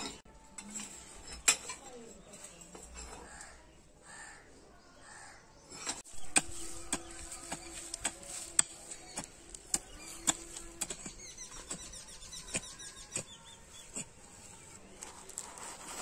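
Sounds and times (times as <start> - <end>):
hoe chopping dry soil: 6.0 - 13.4.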